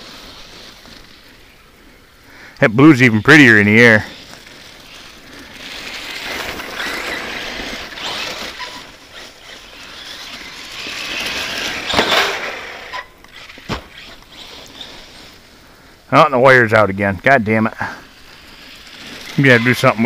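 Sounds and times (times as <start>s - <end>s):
tyres on grass and leaves: 0.0s - 20.0s
rc truck motor whine: 3.4s - 15.5s, 18.0s - 20.0s.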